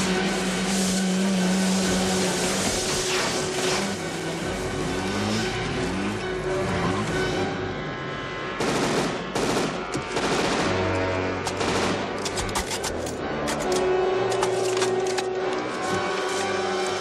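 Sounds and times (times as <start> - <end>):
film score music: 0.0 - 17.0
automatic gunfire: 8.6 - 11.0, 11.6 - 12.2.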